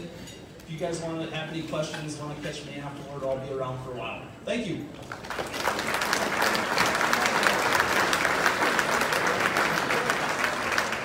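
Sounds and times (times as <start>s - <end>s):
audience applauding: 5.0s - 11.0s.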